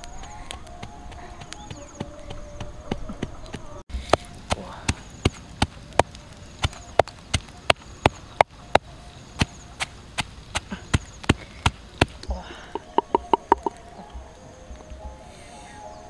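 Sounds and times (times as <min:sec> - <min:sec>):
wooden pestle pounding in mortar: 0:12.8 - 0:13.8.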